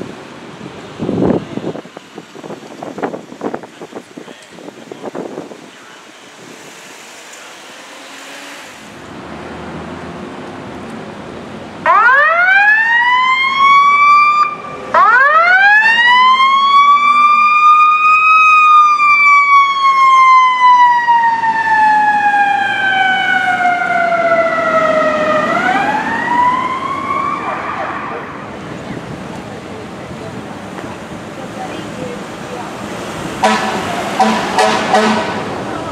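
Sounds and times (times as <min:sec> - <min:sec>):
siren wailing: 0:11.8 - 0:28.5.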